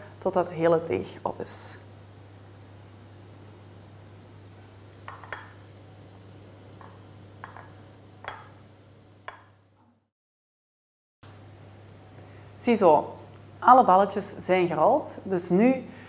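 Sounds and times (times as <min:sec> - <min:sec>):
fingers tapping and rustling in bowl: 0:05.0 - 0:05.7, 0:06.8 - 0:08.6.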